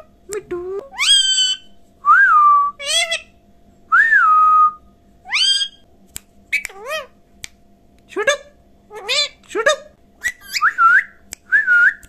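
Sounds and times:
parakeet whistles: 0:01.0 - 0:03.3, 0:05.3 - 0:05.8, 0:10.2 - 0:12.0
parakeet calls sharply rising: 0:05.3 - 0:05.8.

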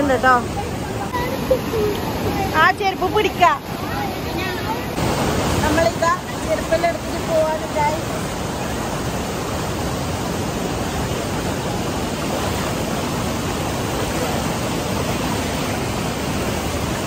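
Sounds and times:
fast-flowing rocky stream: 0:00.0 - 0:17.0
small waterfall cascading: 0:00.0 - 0:17.0.

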